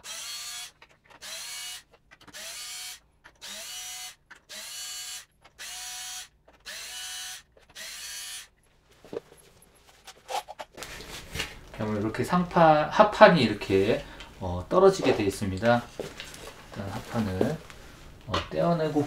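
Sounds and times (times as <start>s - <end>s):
cordless drill whining: 0.0s - 8.5s.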